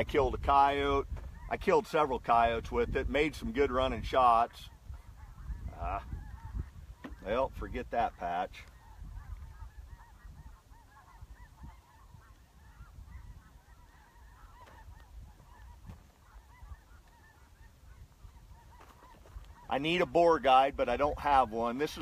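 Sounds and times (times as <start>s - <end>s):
geese honking: 0.0s - 22.0s
wind rumble: 2.2s - 8.0s, 8.6s - 19.7s.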